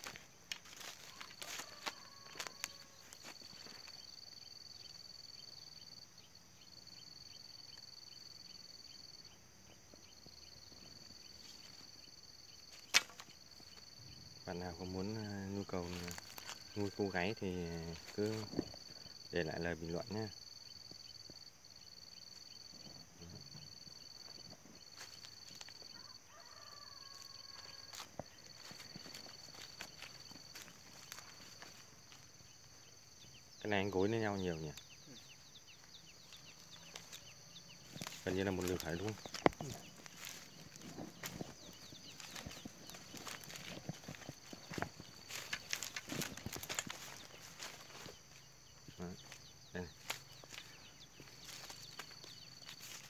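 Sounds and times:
dry sticks snapping underfoot: 0:00.0 - 0:03.9, 0:12.7 - 0:13.4, 0:27.5 - 0:32.3, 0:36.3 - 0:37.2, 0:37.8 - 0:48.1
cricket trill: 0:00.0 - 0:53.0.

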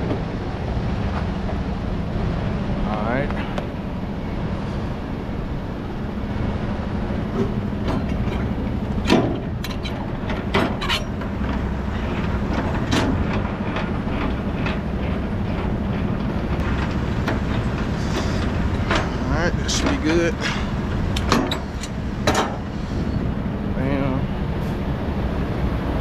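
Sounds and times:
diesel truck engine idling: 0:00.0 - 0:26.0
metallic clanks and clicks: 0:07.3 - 0:20.2, 0:21.1 - 0:22.7.

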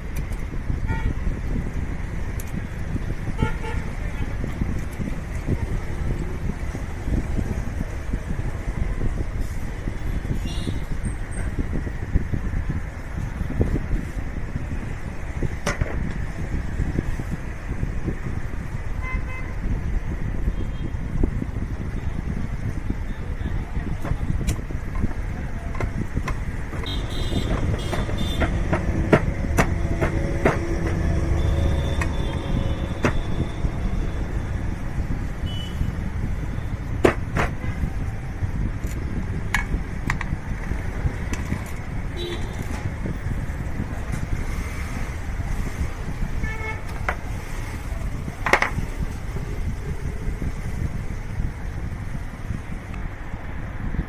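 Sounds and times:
street traffic rumble: 0:00.0 - 0:54.0
vehicle horn toots: 0:26.8 - 0:28.6, 0:42.2 - 0:42.6.

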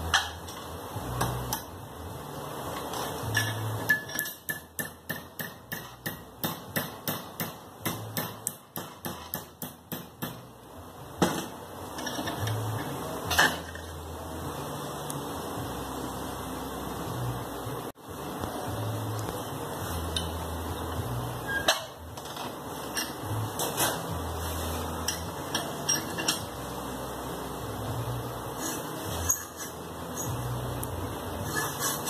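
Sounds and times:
hammer tapping metal: 0:03.3 - 0:10.5.

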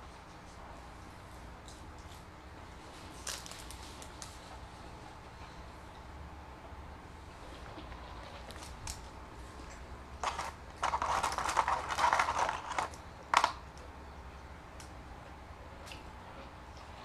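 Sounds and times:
paper crinkling and rustling: 0:03.0 - 0:04.5, 0:10.2 - 0:13.6.

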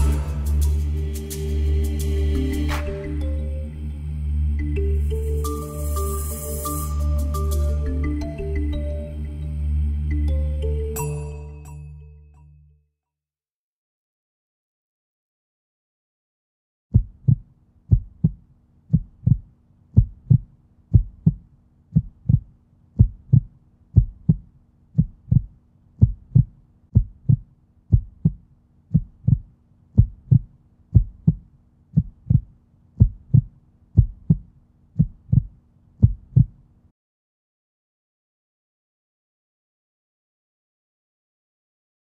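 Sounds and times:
heartbeat thumps: 0:16.9 - 0:36.6.

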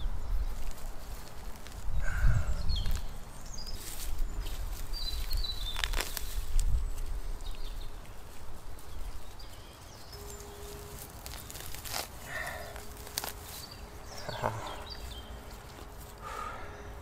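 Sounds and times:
wind rumble on microphone: 0:00.0 - 0:09.5
grass rustling: 0:00.0 - 0:17.0
bird chirps: 0:09.0 - 0:11.7, 0:13.4 - 0:17.0.

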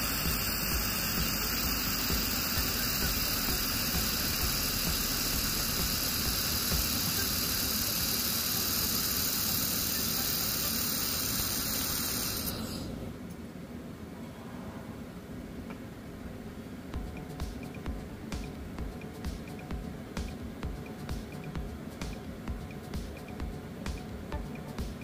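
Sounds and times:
laser welder hissing: 0:00.0 - 0:13.1.

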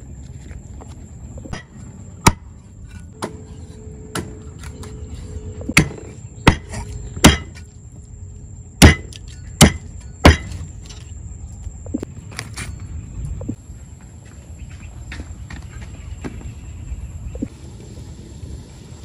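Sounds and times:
cleaver chopping fish on wooden board: 0:05.8 - 0:07.5, 0:08.8 - 0:10.5.

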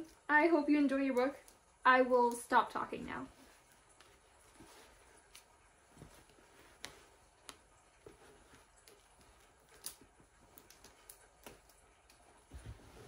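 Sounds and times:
book pages rustling: 0:03.3 - 0:13.0.

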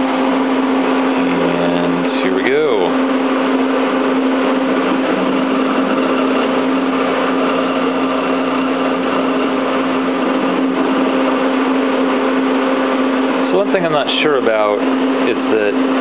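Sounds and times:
servo motor humming: 0:01.0 - 0:12.4.

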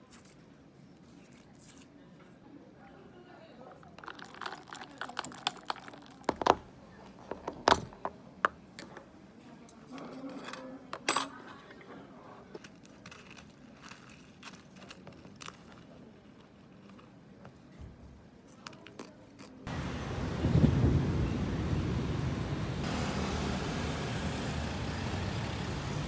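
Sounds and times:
ice clinking in a plastic cup: 0:03.8 - 0:06.7.

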